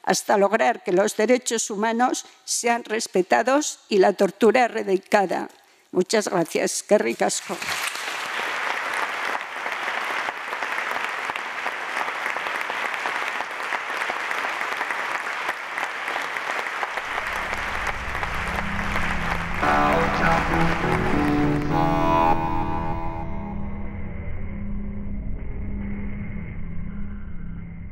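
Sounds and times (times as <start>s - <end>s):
audience applauding: 7.6s - 23.5s
low droning music: 17.0s - 27.9s
jingle melody: 18.8s - 23.8s.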